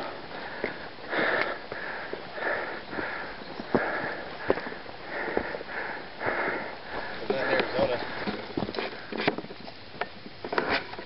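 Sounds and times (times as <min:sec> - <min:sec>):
heavy breathing: 0:00.0 - 0:09.2.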